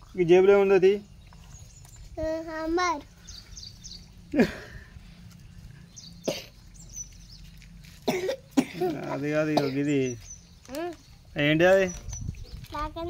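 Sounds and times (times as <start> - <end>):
person coughing: 6.3 - 6.6, 8.0 - 9.9.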